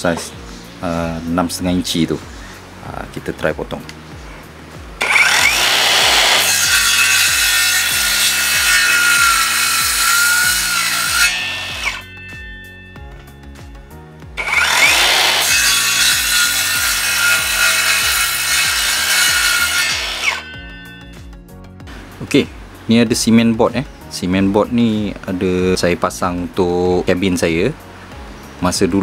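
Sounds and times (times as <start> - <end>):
background music: 0.0 - 29.0
circular saw cutting wood: 5.0 - 12.8, 14.4 - 21.2.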